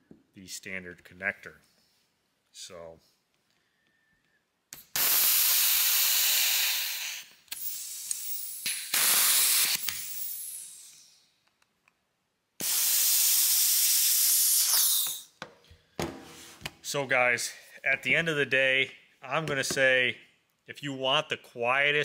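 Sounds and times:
compressed air hissing: 4.8s - 11.3s, 12.6s - 15.4s.

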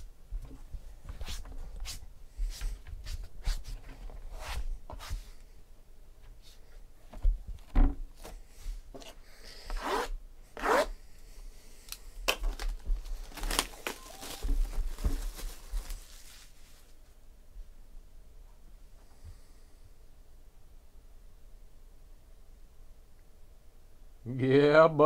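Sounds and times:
plastic wrap ripping and crinkling: 12.3s - 16.9s.

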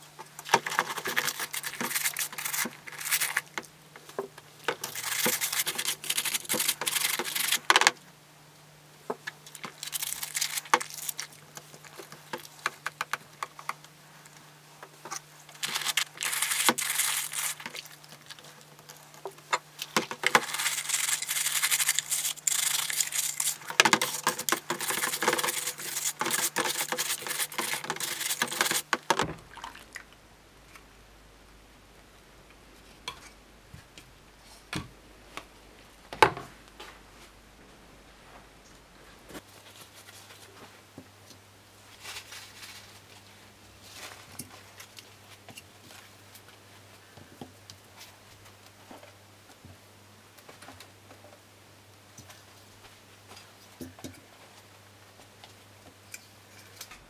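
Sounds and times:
faint steady hum: 0.0s - 57.0s
brush scrubbing plastic: 0.4s - 3.7s, 4.7s - 7.9s, 9.5s - 13.7s, 15.0s - 19.1s, 19.8s - 29.2s
small water splashes: 29.4s - 30.1s.

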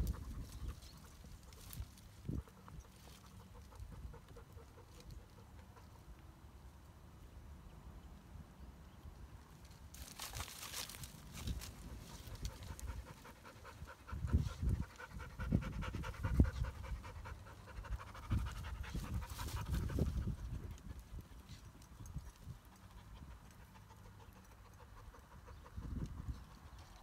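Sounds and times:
twigs rustling: 0.0s - 3.6s, 9.5s - 13.3s
dog panting: 11.9s - 21.7s, 22.3s - 27.0s.

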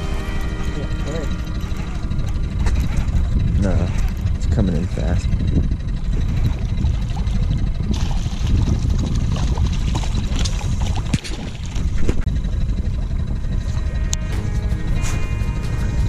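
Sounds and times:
steady low rumble: 0.0s - 16.0s
fish thrashing and splashing: 1.5s - 4.4s, 6.1s - 12.3s.

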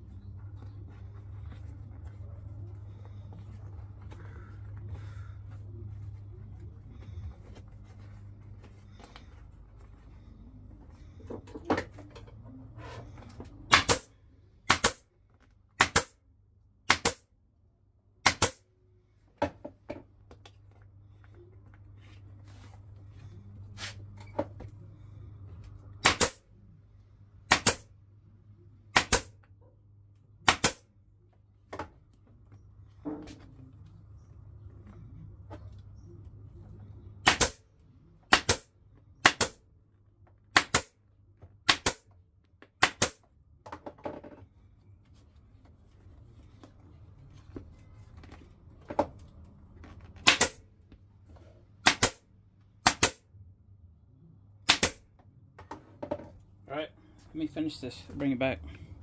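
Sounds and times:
staple gun firing: 13.7s - 14.1s, 37.3s - 37.6s, 41.7s - 42.0s, 50.2s - 50.6s, 51.9s - 52.2s, 54.7s - 55.0s.

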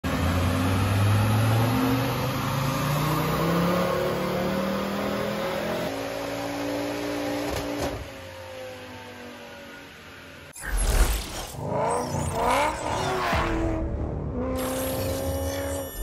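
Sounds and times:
turbocharged car engine revving: 0.1s - 7.6s.

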